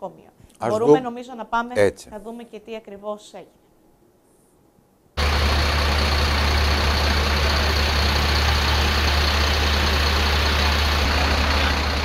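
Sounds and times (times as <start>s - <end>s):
fire truck engine idling: 5.2s - 12.0s.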